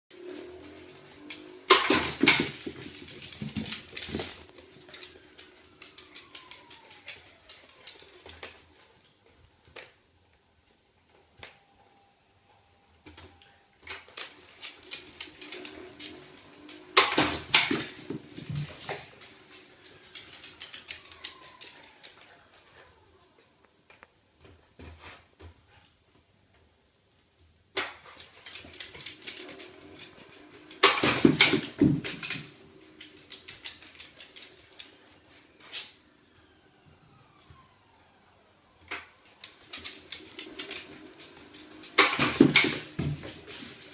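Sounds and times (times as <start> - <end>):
ball launcher motor whine: 0.2 - 4.5, 13.9 - 19.2, 28.6 - 33.0, 36.0 - 43.5.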